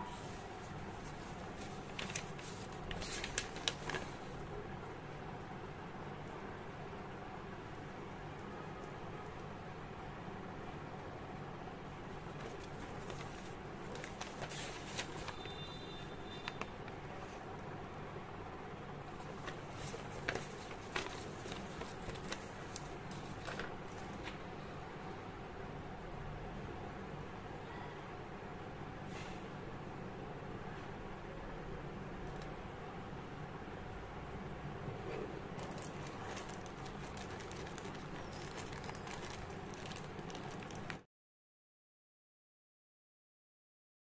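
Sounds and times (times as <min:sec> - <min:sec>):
background hiss and hum: 0:00.0 - 0:41.0
plastic bag crackling: 0:00.2 - 0:04.4, 0:12.3 - 0:17.0, 0:19.1 - 0:24.2, 0:35.5 - 0:41.0
handling rustles and clicks: 0:12.4 - 0:15.4, 0:35.6 - 0:41.0.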